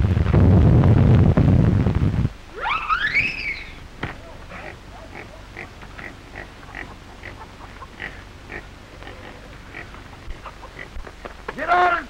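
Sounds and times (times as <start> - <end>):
short high animal calls: 2.5 - 5.8.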